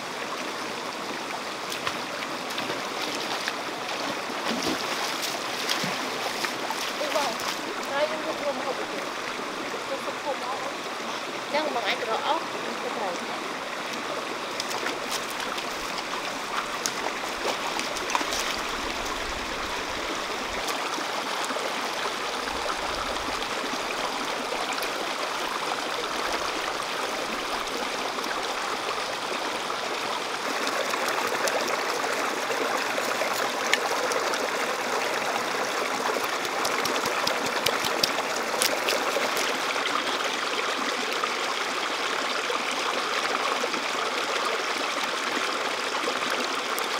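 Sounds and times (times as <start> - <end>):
rocky stream running: 0.0 - 46.9
small splashes and drips: 1.6 - 8.0, 13.9 - 19.2, 36.0 - 39.7.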